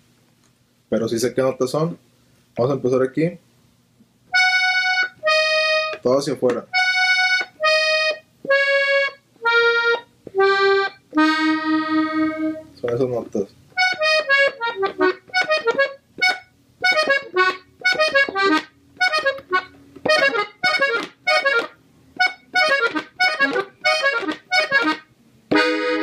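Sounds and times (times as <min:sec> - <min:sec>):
button accordion melody: 0:04.3 - 0:12.7, 0:13.8 - 0:26.0.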